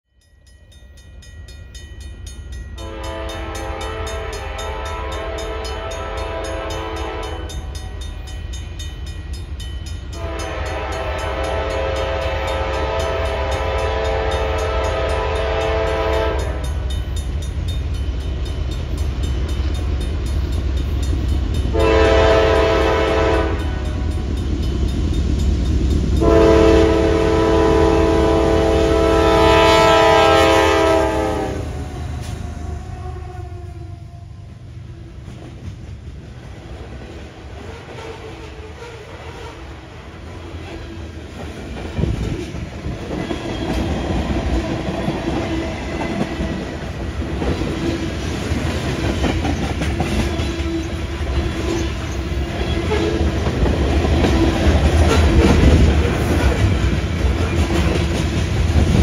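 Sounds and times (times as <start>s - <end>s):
low rumble of train: 0.1s - 59.0s
train air horn blasts: 2.8s - 7.7s, 10.1s - 16.9s, 21.7s - 24.2s, 26.2s - 34.5s, 55.0s - 56.7s.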